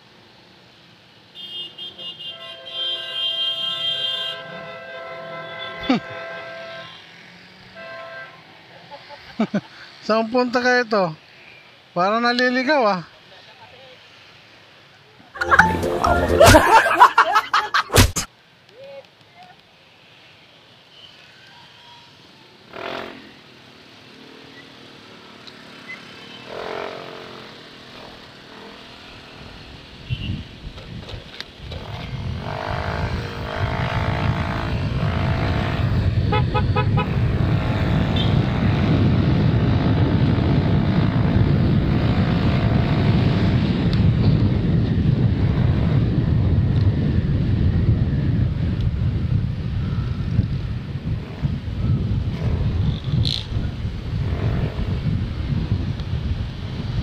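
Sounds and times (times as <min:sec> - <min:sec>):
passing motorbikes and traffic: 0:00.0 - 0:17.8, 0:18.4 - 0:57.0
wind rumble on microphone: 0:29.5 - 0:57.0
motorcycle engine: 0:31.7 - 0:43.5.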